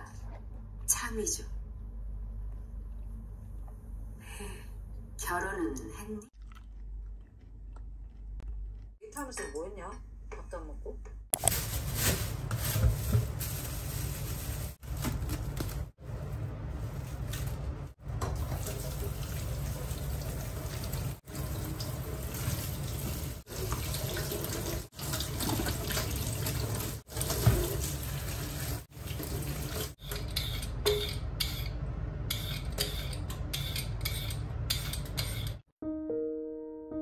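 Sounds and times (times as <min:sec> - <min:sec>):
tap water running into sink: 0:18.2 - 0:30.0.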